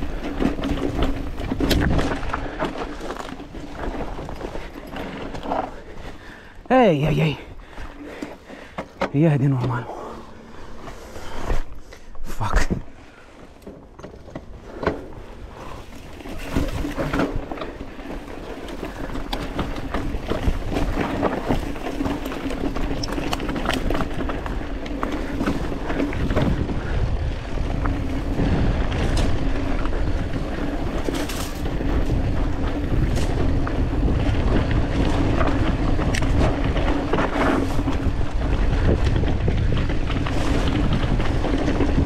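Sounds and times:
bike rattling over bumps: 0.0s - 12.1s, 12.7s - 42.0s
bike tyres on dirt and stones: 0.0s - 42.0s
wind on microphone: 22.7s - 42.0s.

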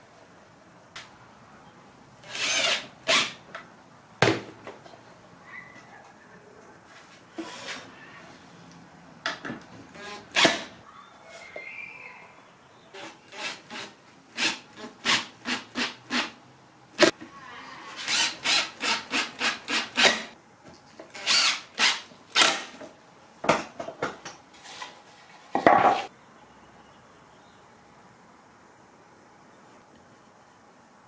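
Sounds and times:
cordless drill driving screws: 2.2s - 3.4s, 18.0s - 20.3s, 21.1s - 22.7s.

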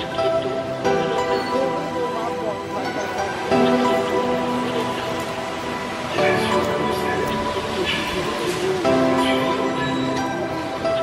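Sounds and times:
background music held chords: 0.0s - 11.0s.

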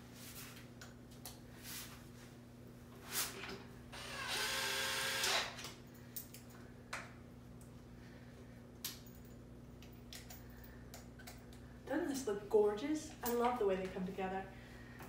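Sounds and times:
cordless drill motor whine: 3.9s - 5.6s.

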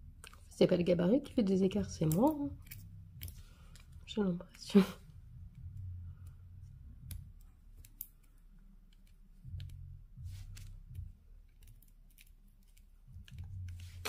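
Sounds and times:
soft low handling rumble: 1.3s - 14.0s
tweezers clicking: 1.9s - 4.6s, 7.0s - 10.0s.

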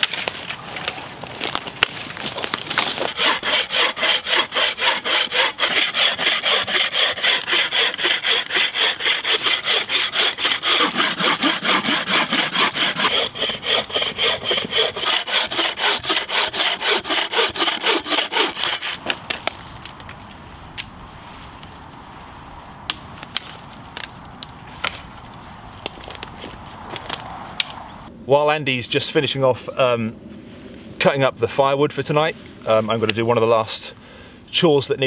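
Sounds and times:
bucksaw cutting a log: 2.5s - 19.6s.

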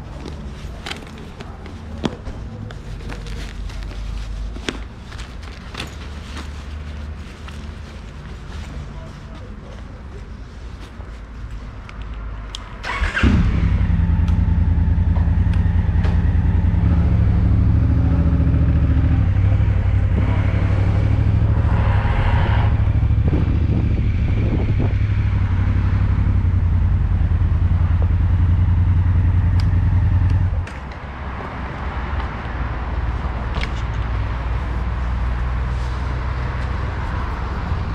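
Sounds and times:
motorcycle engine: 12.8s - 30.6s.

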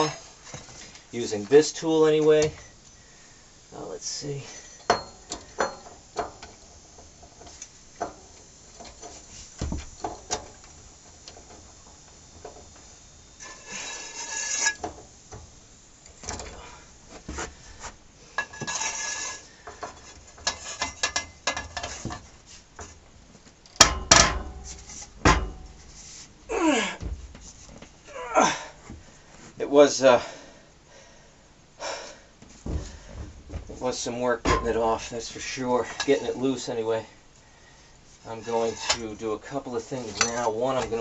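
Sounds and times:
nut grinding as it turns: 4.6s - 16.7s
loud metal knocks: 23.8s - 25.9s, 26.9s - 28.0s, 32.6s - 35.6s.

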